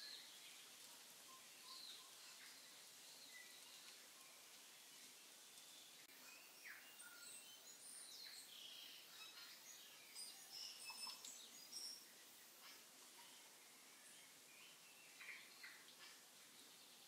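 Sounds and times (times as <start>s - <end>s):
low steady hiss: 0.0s - 17.0s
birds chirping and whistling: 6.1s - 13.4s.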